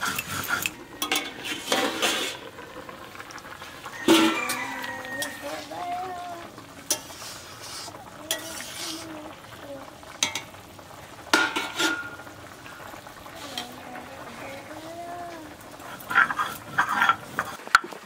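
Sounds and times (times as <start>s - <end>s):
metal spatula scraping a pan: 0.0s - 2.5s, 4.0s - 6.0s, 6.8s - 9.1s, 11.3s - 12.2s, 15.8s - 17.8s
curry simmering: 0.0s - 18.0s.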